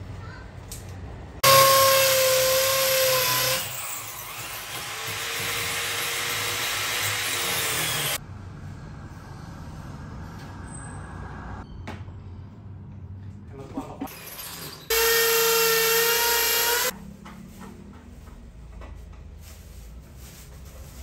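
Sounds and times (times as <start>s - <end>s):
power drill whining: 1.4s - 8.2s, 14.3s - 16.9s.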